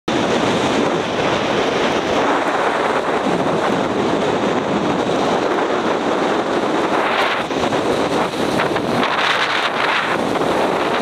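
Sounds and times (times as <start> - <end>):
strong wind on microphone: 0.1 - 11.0
waves breaking on shore: 0.1 - 11.0.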